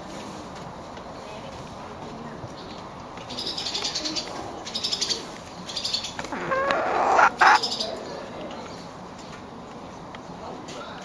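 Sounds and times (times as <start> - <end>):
hen chirping: 4.8 - 8.0
hen call ending in squawk: 6.4 - 7.6.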